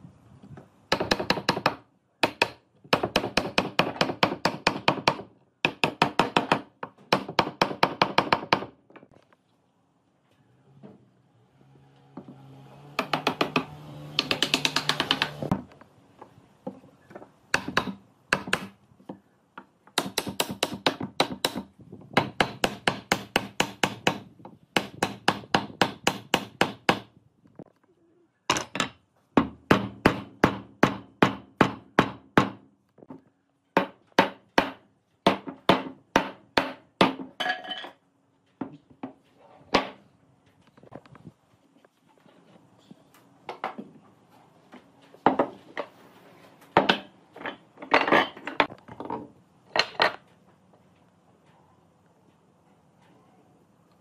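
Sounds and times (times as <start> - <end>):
hammer knocking wooden joints: 0.9 - 9.1, 12.2 - 15.7, 17.5 - 19.2, 19.9 - 27.1, 28.6 - 33.2, 33.8 - 37.3.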